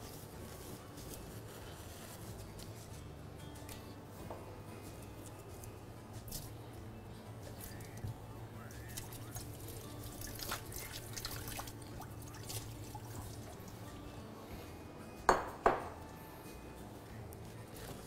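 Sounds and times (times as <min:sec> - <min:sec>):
water at a kitchen sink: 0:07.5 - 0:14.1
glass and crockery clinking: 0:15.3 - 0:16.0.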